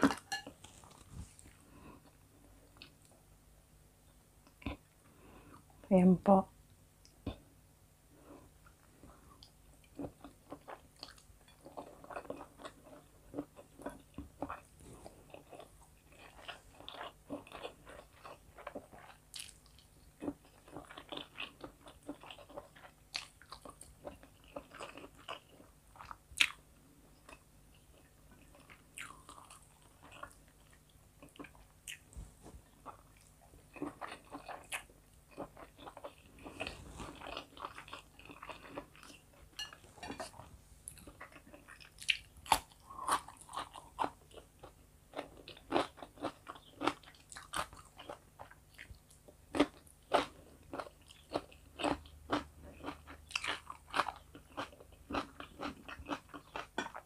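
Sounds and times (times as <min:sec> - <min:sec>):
chewing and crunching food: 0:00.0 - 0:03.1, 0:08.4 - 0:57.0.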